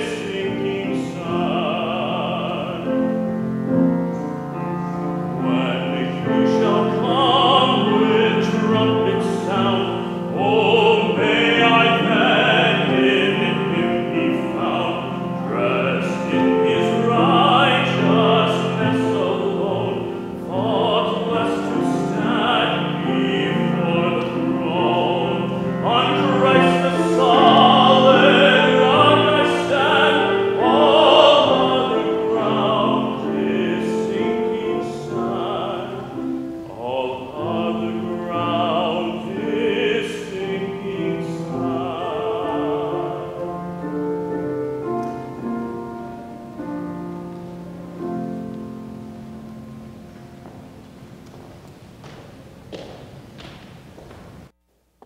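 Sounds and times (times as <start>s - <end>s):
man singing operatically: 0.0s - 3.9s, 4.6s - 44.3s.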